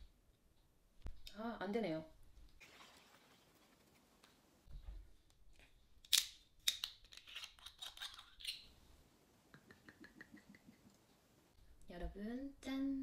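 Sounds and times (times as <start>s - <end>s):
liquid pouring in glugs: 2.6s - 4.0s.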